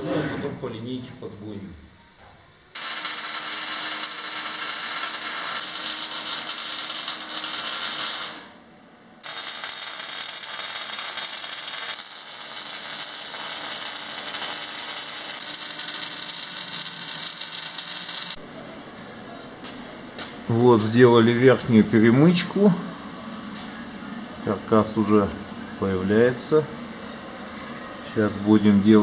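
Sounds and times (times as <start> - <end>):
arc welding crackling sizzle: 0.6 - 18.4, 28.1 - 29.0.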